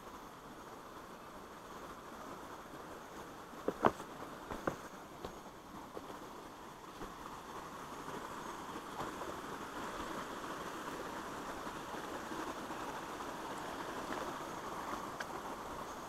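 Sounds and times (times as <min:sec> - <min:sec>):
creek water rushing: 0:00.0 - 0:16.0
faint footsteps: 0:03.6 - 0:06.3.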